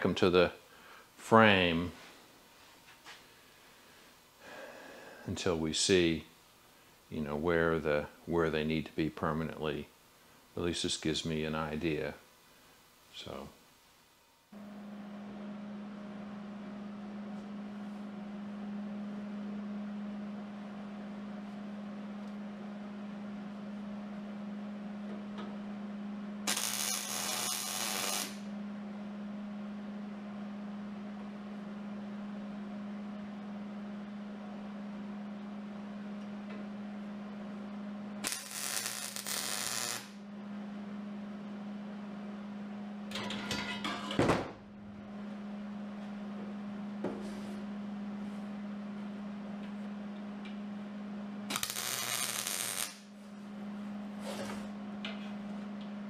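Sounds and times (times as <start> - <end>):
steady hum: 0.0 - 56.0
mig welder welding: 26.4 - 28.5, 38.2 - 40.2, 51.5 - 53.1.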